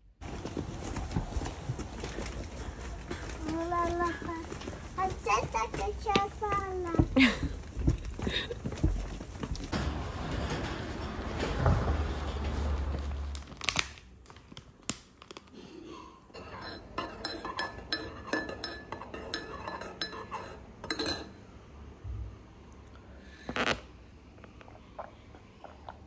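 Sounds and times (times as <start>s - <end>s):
low rumbling noise: 7.2s - 13.8s
spoon clinking against mug: 16.4s - 21.3s.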